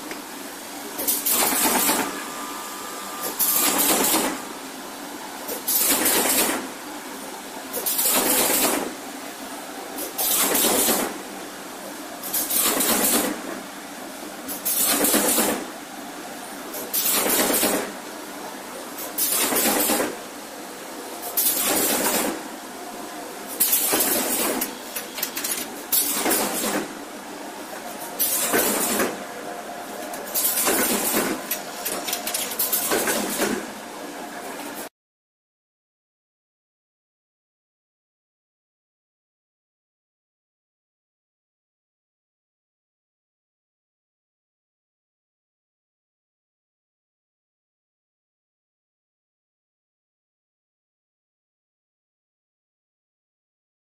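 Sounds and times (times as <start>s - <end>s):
machine running: 0.0s - 34.9s.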